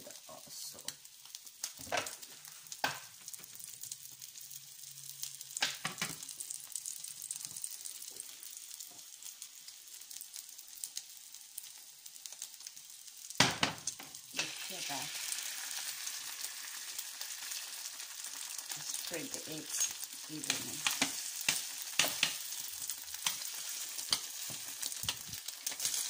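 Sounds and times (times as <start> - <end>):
food sizzling in frying pan: 0.0 - 26.0.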